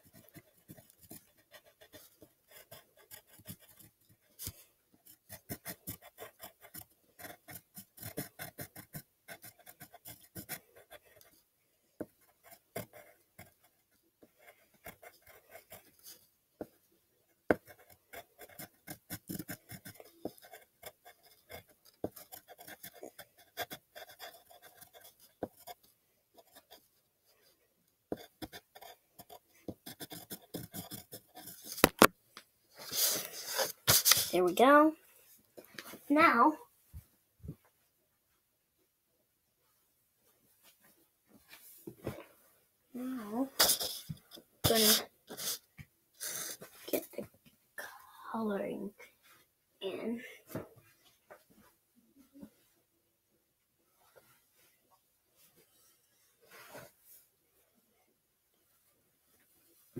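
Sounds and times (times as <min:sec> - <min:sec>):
pencil scratching on paper: 0:00.0 - 0:11.4, 0:12.0 - 0:16.8, 0:17.4 - 0:27.5, 0:28.1 - 0:32.1, 0:32.8 - 0:34.9, 0:43.4 - 0:47.3.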